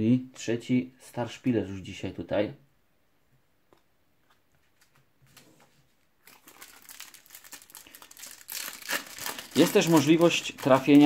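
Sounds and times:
foil packet crinkling: 0:06.2 - 0:11.0.

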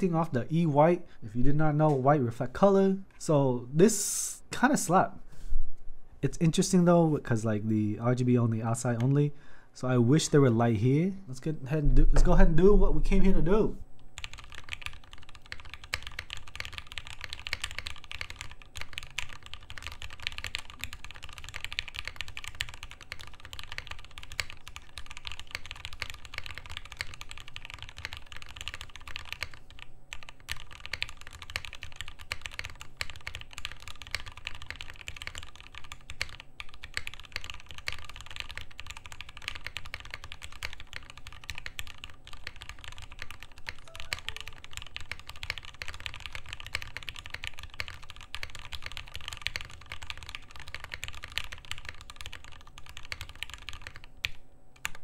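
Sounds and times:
fast mechanical keyboard typing: 0:14.2 - 0:55.0.

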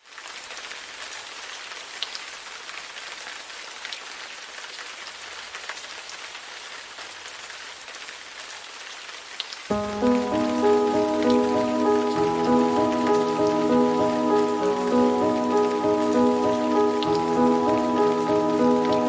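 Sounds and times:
steady rain falling: 0:00.0 - 0:19.0
music: 0:09.7 - 0:19.0.

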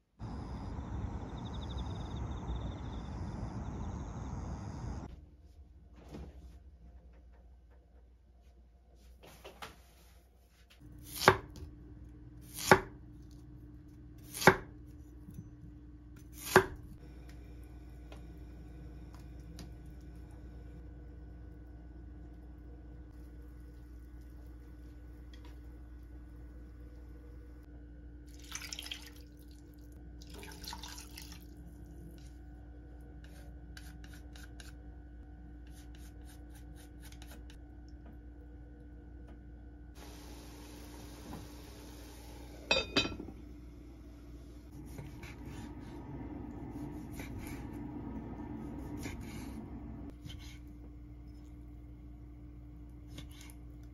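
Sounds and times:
liquid pouring into a pot: 0:28.3 - 0:31.9.

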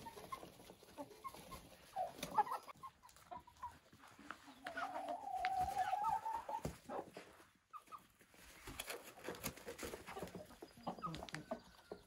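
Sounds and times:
chicken high chirps: 0:00.0 - 0:07.0
chickens clucking: 0:00.0 - 0:12.0
pecking and scuffling: 0:00.0 - 0:12.0.

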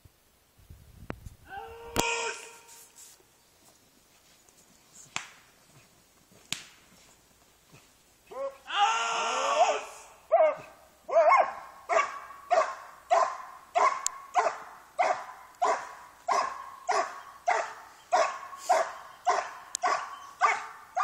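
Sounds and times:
dog barking rhythmically: 0:10.3 - 0:21.0.

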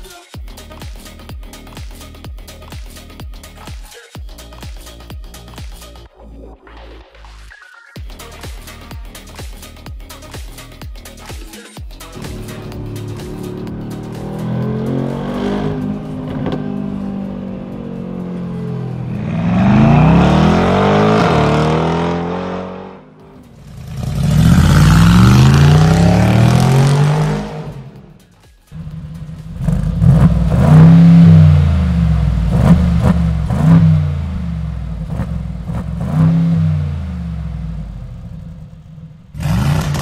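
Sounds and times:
car engine accelerating: 0:12.0 - 0:40.0
engine revving from idle: 0:12.2 - 0:17.3, 0:18.1 - 0:28.0, 0:28.8 - 0:40.0.

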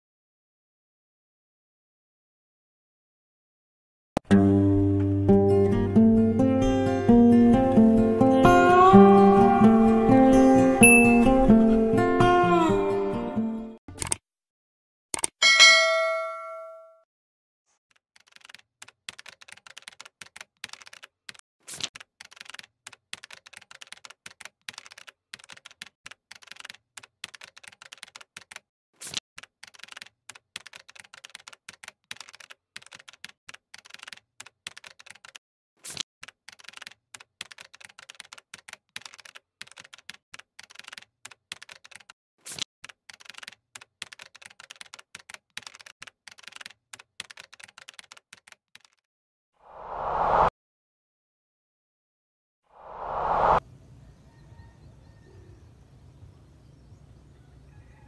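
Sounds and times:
keyboard typing: 0:13.9 - 0:14.2, 0:15.2 - 0:15.4, 0:17.9 - 0:49.0.

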